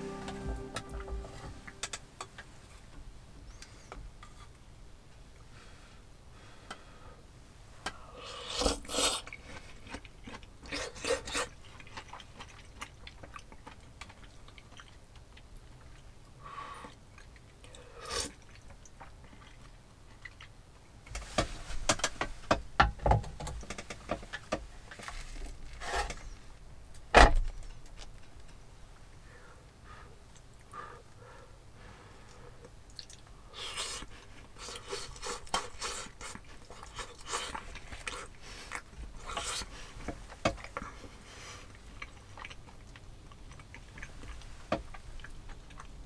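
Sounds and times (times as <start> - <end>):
person slurping: 8.1 - 9.4, 17.7 - 18.4, 33.0 - 39.8
chewing: 8.4 - 20.9, 32.2 - 46.0.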